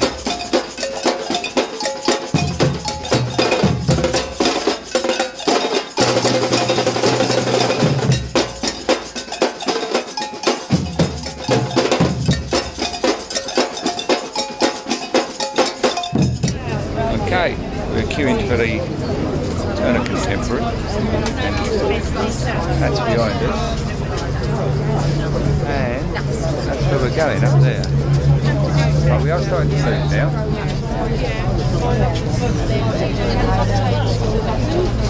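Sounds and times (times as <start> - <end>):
bass drums pounding: 0.0 - 9.4, 10.7 - 14.4, 15.9 - 17.3
rapid stick strokes on drums: 0.0 - 16.6.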